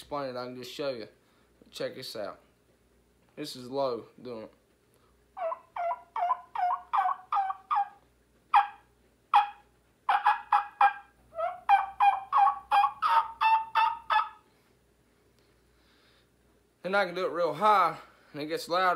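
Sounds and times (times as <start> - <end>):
man imitating turkey call: 5.4 - 14.4.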